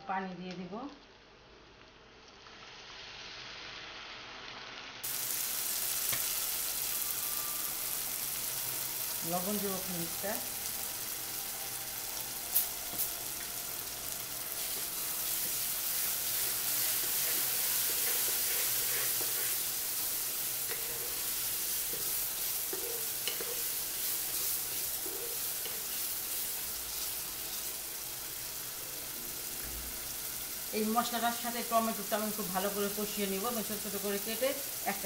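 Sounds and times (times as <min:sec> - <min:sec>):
onion paste sizzling in a pan: 0:00.4 - 0:35.0
wooden spatula scraping a pan: 0:14.6 - 0:20.0, 0:20.6 - 0:26.4.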